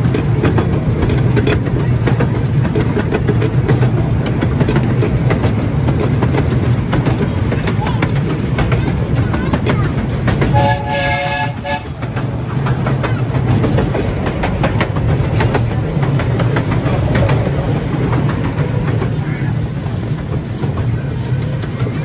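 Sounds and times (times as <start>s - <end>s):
low train rumble: 0.0s - 22.0s
train wheels clicking over rail joints: 0.0s - 22.0s
steam locomotive whistle: 10.5s - 12.0s.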